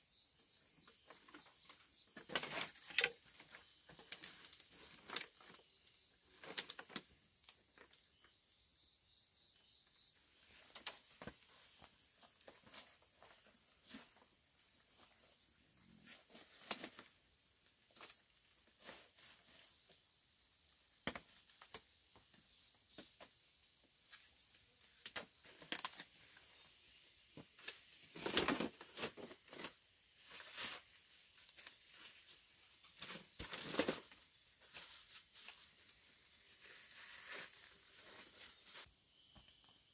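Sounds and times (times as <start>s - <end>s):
leaves and stems rustling and snapping: 27.6s - 29.7s.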